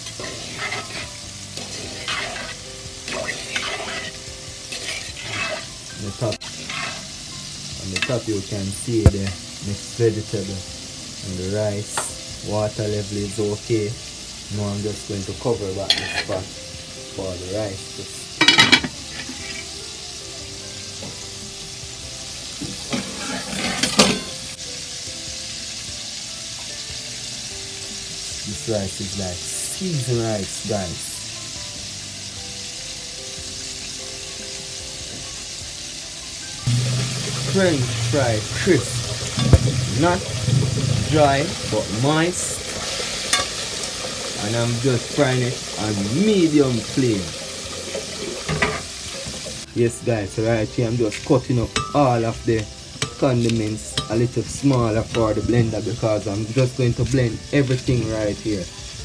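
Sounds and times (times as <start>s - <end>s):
metal spoon scraping pot: 0.0s - 7.2s, 15.9s - 16.4s, 22.9s - 24.4s, 36.7s - 41.8s
chicken deep-frying in oil: 0.0s - 59.0s
steady sizzling hiss: 0.0s - 59.0s.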